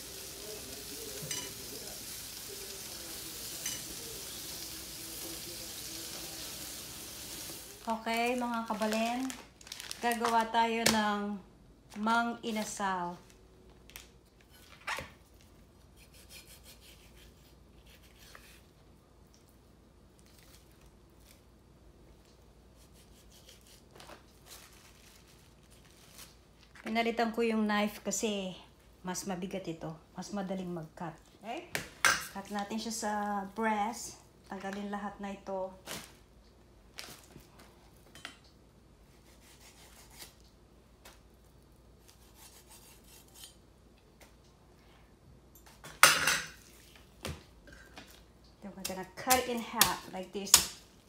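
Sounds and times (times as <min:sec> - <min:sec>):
knife cutting raw chicken: 0:16.0 - 0:18.6, 0:22.8 - 0:23.9, 0:39.2 - 0:40.4, 0:42.0 - 0:43.6.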